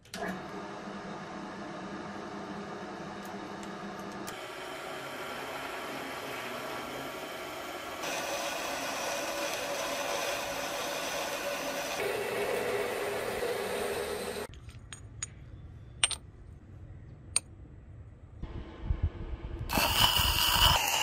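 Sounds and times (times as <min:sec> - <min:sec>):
lathe drilling metal bar: 0:04.3 - 0:14.5.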